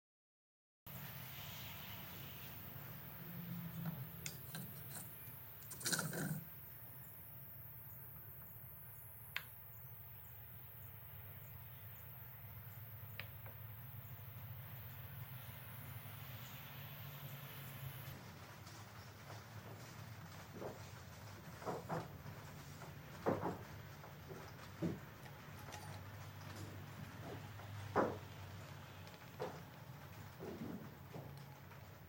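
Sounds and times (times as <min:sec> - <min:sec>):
metal rod scraping: 0:03.7 - 0:06.4.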